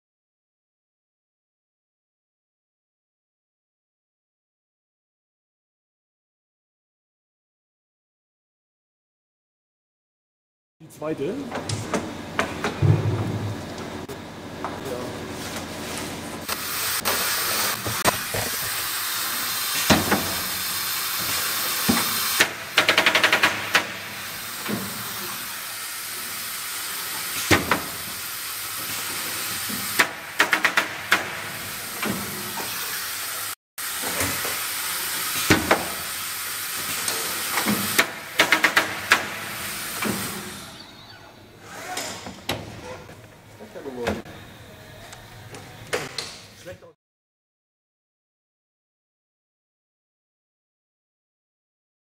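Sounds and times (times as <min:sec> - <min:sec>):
machine knocks: 0:11.6 - 0:13.6
rapid machine clicks: 0:22.4 - 0:23.9.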